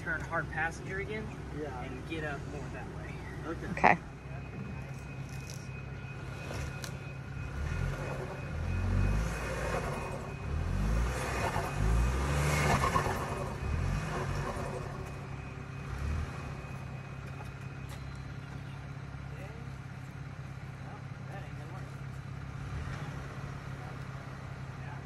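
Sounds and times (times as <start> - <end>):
car engine revving: 0.0 - 25.0
tyres on gravel: 0.0 - 25.0.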